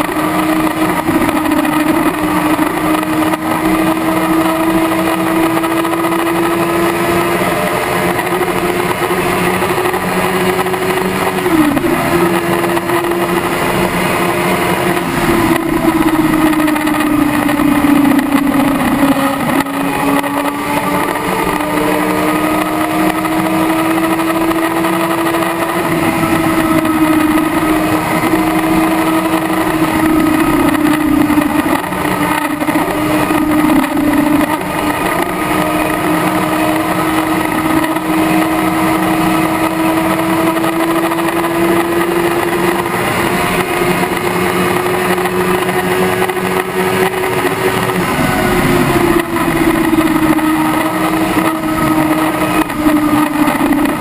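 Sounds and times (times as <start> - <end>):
motorcycle engine accelerating: 0.0 - 54.0
heavy wind rush: 13.4 - 20.2, 45.7 - 54.0.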